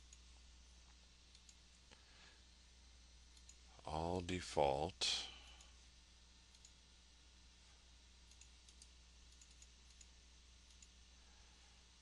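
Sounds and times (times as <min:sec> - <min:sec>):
steady low hum: 0:00.0 - 0:12.0
computer mouse clicks: 0:01.3 - 0:02.0, 0:03.3 - 0:03.6, 0:06.5 - 0:06.8, 0:08.2 - 0:11.0.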